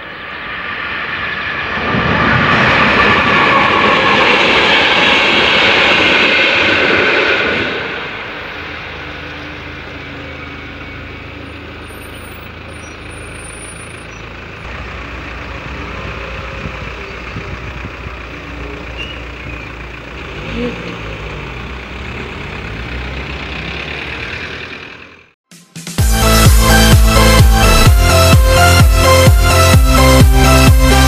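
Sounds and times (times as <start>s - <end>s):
train wheels rumbling on rails: 1.7s - 25.3s
car engine idling: 8.1s - 25.4s, 26.1s - 31.0s.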